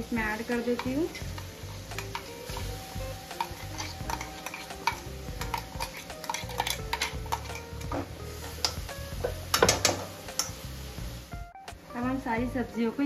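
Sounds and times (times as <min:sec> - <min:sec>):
metal spoon tapping on steel jar: 0:03.3 - 0:07.6.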